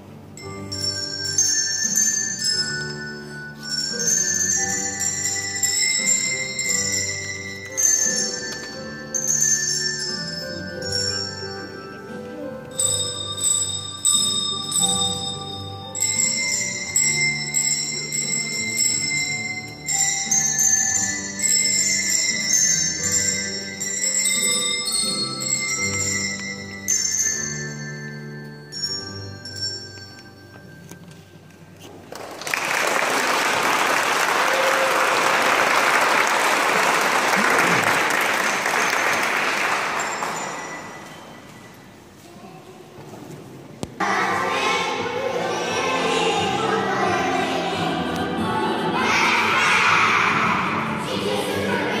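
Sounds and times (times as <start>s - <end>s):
handbells playing slow tune: 0.3s - 31.9s, 37.2s - 42.4s, 44.0s - 52.0s
audience applauding: 32.1s - 40.5s.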